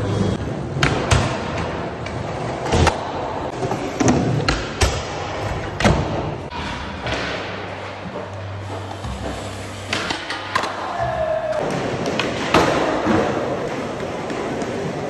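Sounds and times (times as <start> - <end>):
skateboard wheels rolling: 7.4 - 15.0.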